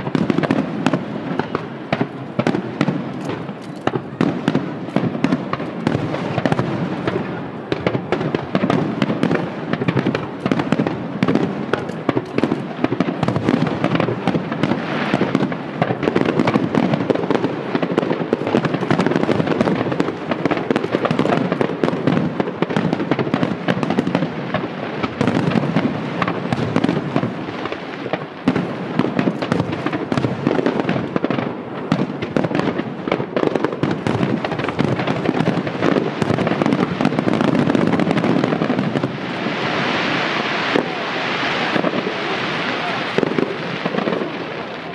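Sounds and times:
fireworks bursting: 0.0 - 44.9.

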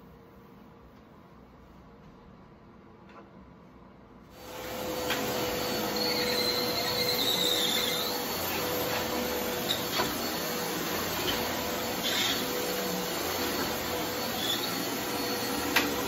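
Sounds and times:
vacuum cleaner running: 4.3 - 16.0.

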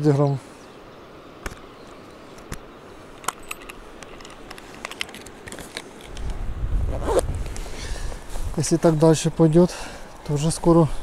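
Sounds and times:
handling clicks and rustles: 2.3 - 7.8.

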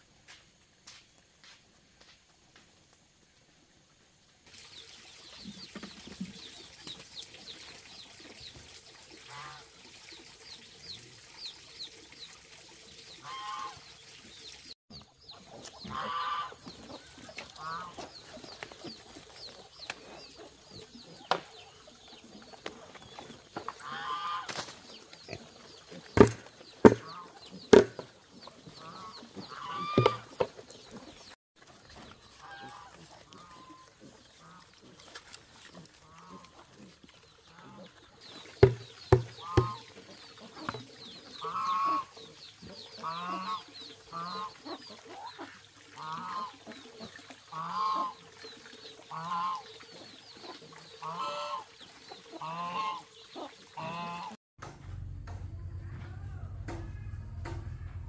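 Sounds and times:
chickens clucking: 14.9 - 54.4
sharp knocks: 26.2 - 28.0, 38.6 - 39.8.

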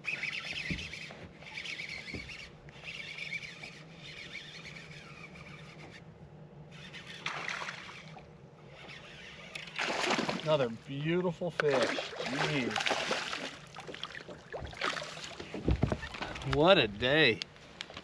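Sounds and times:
fishing reel cranking: 0.0 - 6.1, 6.7 - 9.8
water lapping at boat: 0.0 - 16.8.

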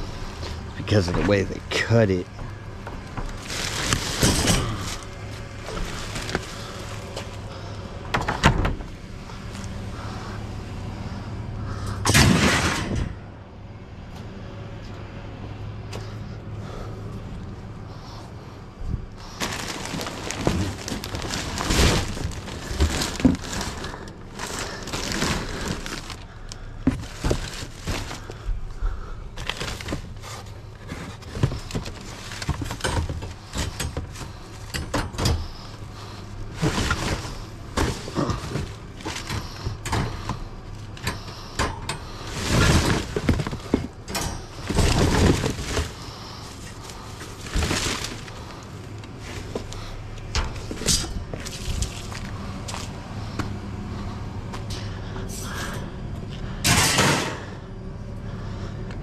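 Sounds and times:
plastic trash bags crinkling: 0.0 - 7.8, 19.1 - 34.8, 35.4 - 40.4, 42.1 - 49.9, 50.6 - 52.9
cardboard boxes shifted: 3.0 - 10.1, 19.2 - 34.7, 35.3 - 40.5, 42.1 - 49.9, 50.5 - 52.9.

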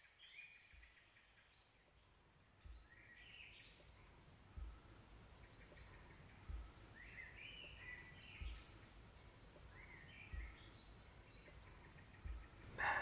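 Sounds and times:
small birds chirping: 0.0 - 13.0
soft hiss: 0.0 - 13.0
soft low thuds: 2.6 - 13.0.

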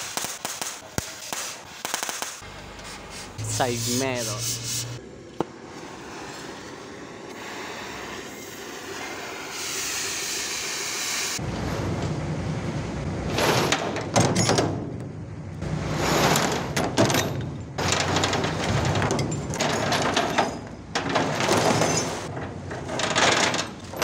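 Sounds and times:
low mechanical rumble: 2.4 - 24.0
loud rattling clatter: 15.9 - 24.0.

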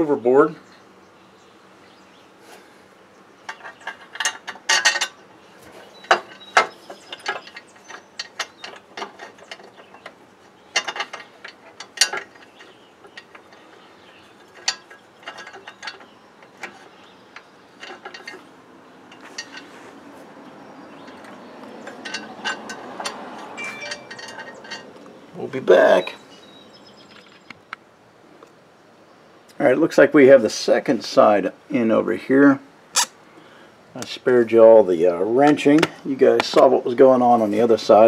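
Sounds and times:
metal clinks: 21.0 - 25.0.

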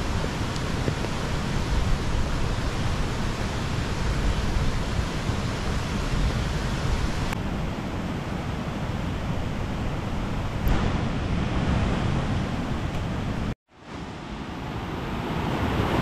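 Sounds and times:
rain hissing: 0.0 - 7.4
wind rumbling on microphone: 0.0 - 16.0.

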